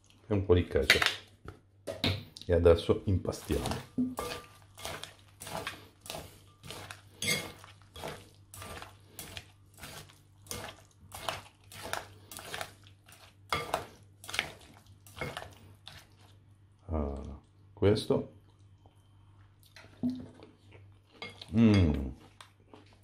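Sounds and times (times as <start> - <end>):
utensils clinking on glass bowl: 3.7 - 8.8, 13.5 - 13.9.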